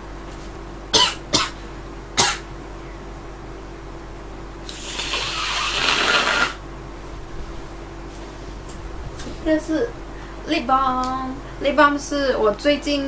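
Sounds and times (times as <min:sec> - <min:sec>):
woman coughing: 0:01.0 - 0:01.6, 0:02.2 - 0:02.5
woman blowing her nose: 0:04.7 - 0:06.6.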